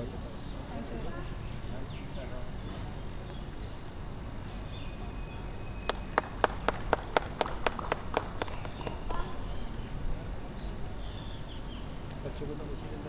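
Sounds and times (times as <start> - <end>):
background hum: 0.0 - 13.0
sharp hand claps: 5.9 - 9.3.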